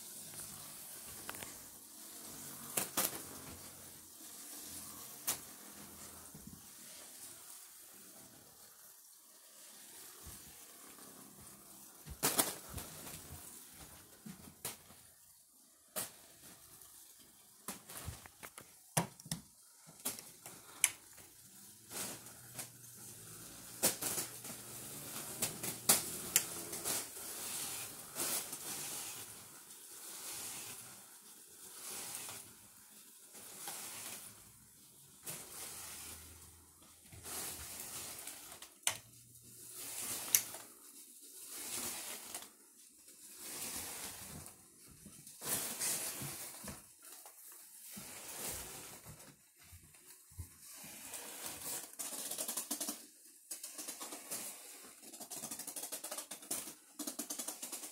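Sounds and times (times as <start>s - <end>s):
crinkling foil balloons: 0.0s - 57.9s
fan blades slapping balloons: 17.1s - 30.2s.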